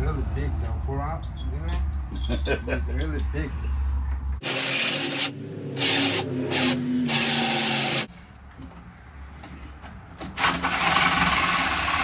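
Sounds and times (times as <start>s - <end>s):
drill boring into plywood: 4.4s - 8.1s.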